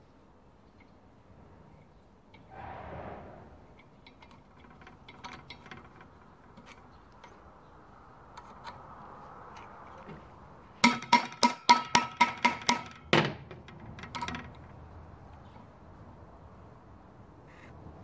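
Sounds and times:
faint metal scraping: 2.4s - 5.0s
small metal clicks: 3.8s - 7.6s, 8.3s - 10.2s.

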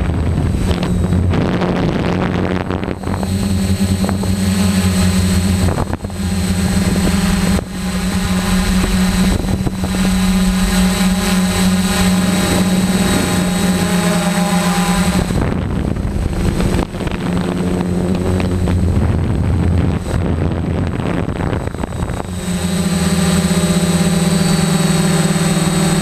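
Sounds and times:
quadcopter propellers buzzing: 0.0s - 26.0s
wind on microphone: 0.0s - 26.0s.

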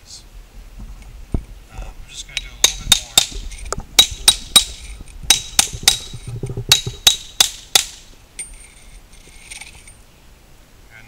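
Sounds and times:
hammer tapping chisel on concrete: 2.3s - 8.0s.

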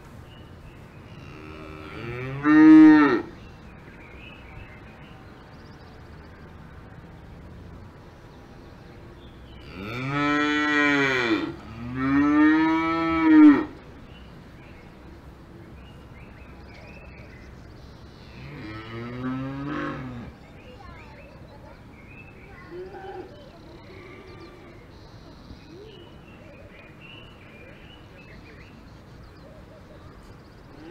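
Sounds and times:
cow mooing: 18.4s - 20.3s.

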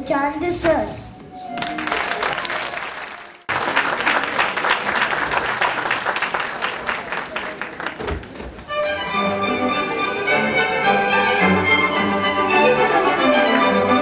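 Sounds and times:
orchestral music with strings: 0.0s - 3.5s, 8.6s - 14.0s
audience applauding: 1.5s - 8.4s.

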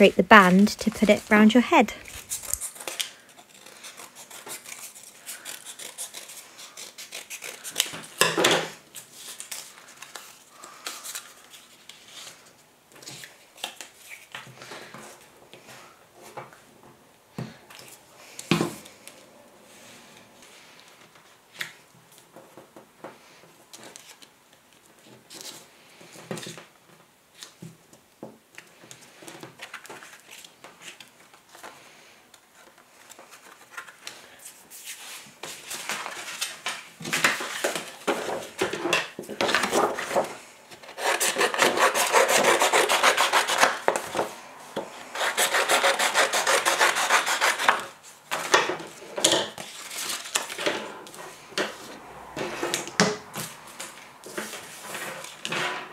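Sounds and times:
card strips rustling and rubbing: 0.0s - 8.2s, 9.0s - 14.4s, 32.5s - 44.3s, 45.0s - 50.6s.

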